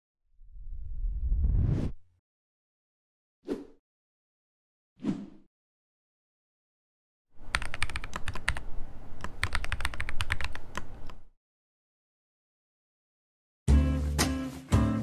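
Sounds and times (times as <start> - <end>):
keyboard key clicks: 7.5 - 11.2.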